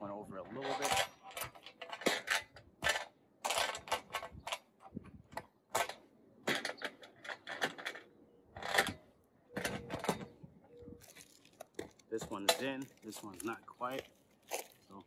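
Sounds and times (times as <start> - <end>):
metal bolt clicking and scraping: 0.4 - 10.4.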